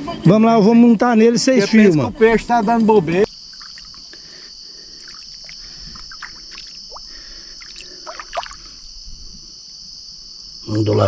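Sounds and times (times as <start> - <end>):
insect chorus drone: 0.0 - 11.0
insect chirps and clicks: 2.4 - 11.0.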